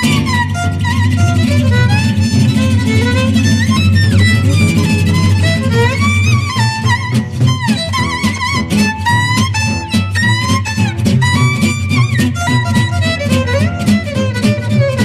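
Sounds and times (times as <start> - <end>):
low musical accompaniment: 0.0 - 9.0
sliding violin melody: 0.0 - 15.0.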